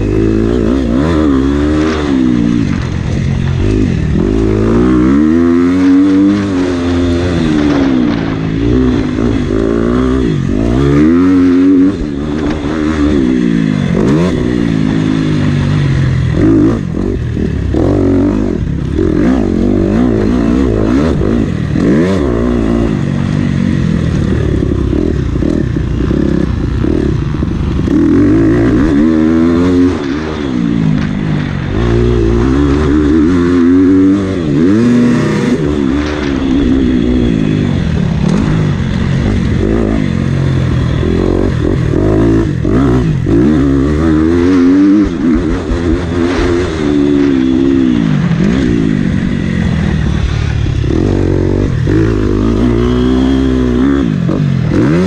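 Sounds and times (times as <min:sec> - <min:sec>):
motocross bike engine revving: 0:00.0 - 0:55.0.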